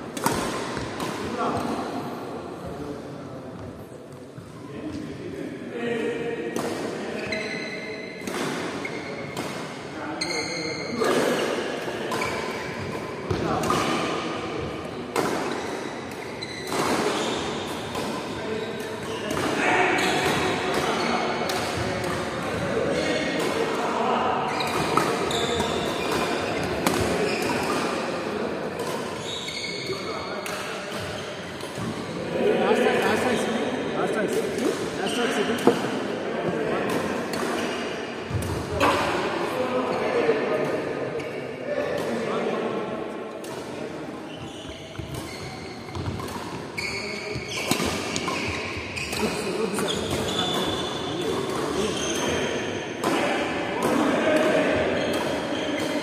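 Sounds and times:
rackets striking shuttlecock: 0.1 - 1.7
racket hitting shuttlecock: 0.1 - 1.8, 8.2 - 9.8, 11.0 - 23.8, 24.6 - 28.0, 35.5 - 36.1, 36.9 - 39.2, 44.9 - 46.7, 47.3 - 51.9, 53.0 - 56.0
shoes squeaking on court: 7.2 - 8.2, 12.1 - 12.9, 15.4 - 17.6, 24.5 - 27.9, 29.2 - 30.4, 44.3 - 52.7.

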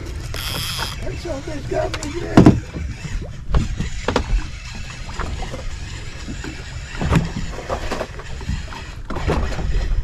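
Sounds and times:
water lapping against boat hull: 0.0 - 10.0
fishing reel winding: 0.3 - 1.0.

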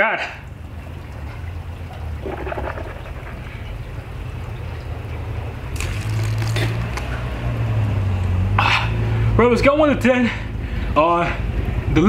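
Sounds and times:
low hum: 0.6 - 5.8
short rush of noise: 2.2 - 4.0.

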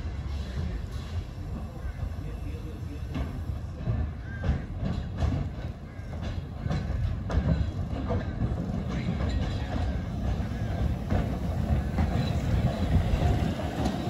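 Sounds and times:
steam train rumbling past: 0.0 - 14.0
train wheels clanking on track: 0.0 - 14.0.

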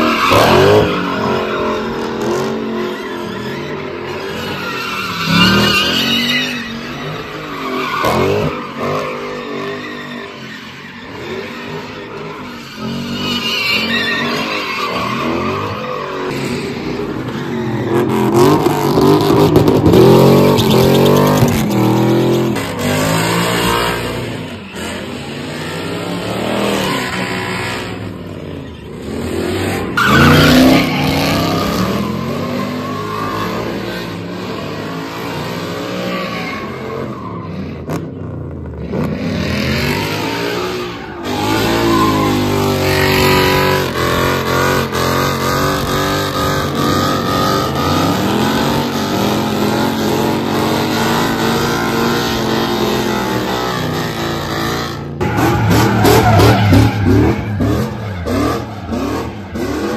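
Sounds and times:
tyres squealing: 0.0 - 16.4, 19.9 - 22.2, 26.6 - 34.2
car engines revving: 0.0 - 59.9.

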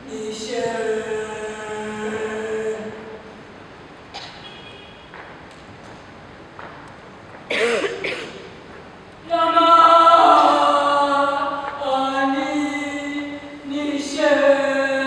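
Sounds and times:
person singing sustained notes: 9.3 - 15.0.

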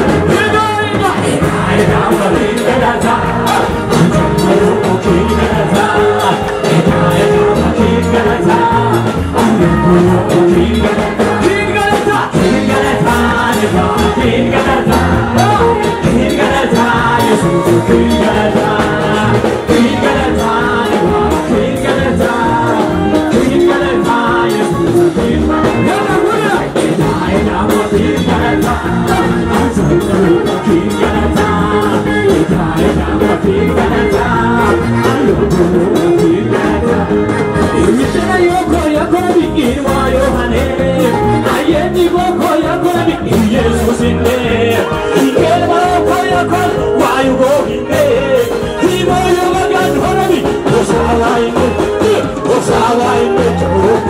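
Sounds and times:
crowd singing along: 0.0 - 54.0
lively band music: 0.0 - 54.0.

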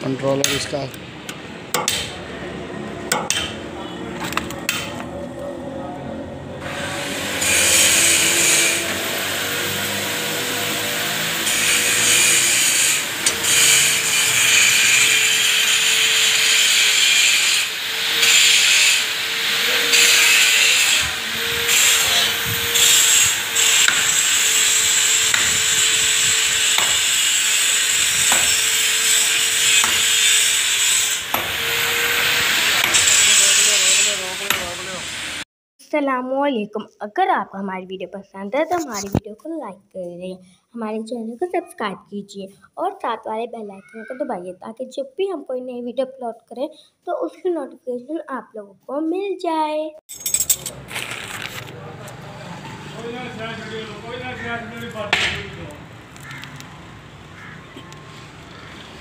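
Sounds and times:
power tool hissing: 6.6 - 35.4
power tool whine: 6.6 - 35.4.

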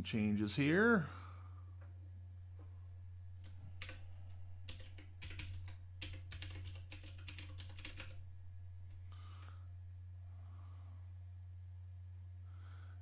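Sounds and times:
faint steady low hum: 0.0 - 13.0
computer keyboard typing: 3.4 - 8.2.

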